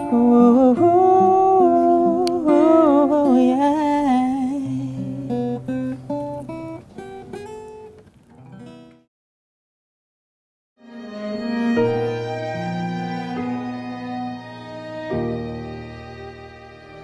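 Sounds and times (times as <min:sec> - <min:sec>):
person humming a melody: 0:00.0 - 0:05.7
plucked acoustic guitar: 0:00.0 - 0:09.1.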